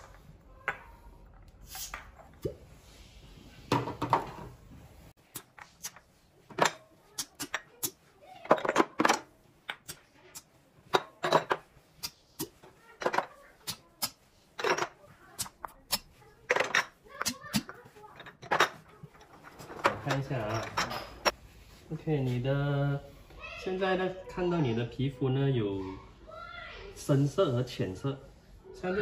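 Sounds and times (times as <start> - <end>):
glass cups clinking: 10.9 - 11.6, 18.2 - 21.4.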